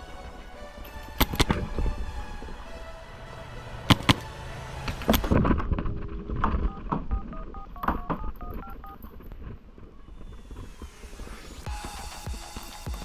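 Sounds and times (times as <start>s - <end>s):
short two-tone electronic beeps: 6.6s - 9.0s.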